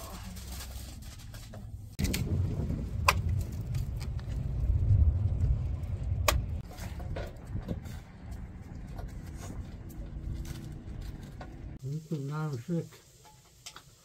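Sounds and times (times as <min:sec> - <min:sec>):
aluminium foil crinkling: 0:00.0 - 0:02.1
fire rumbling in oven: 0:01.7 - 0:11.8
fire cracks: 0:01.9 - 0:08.8.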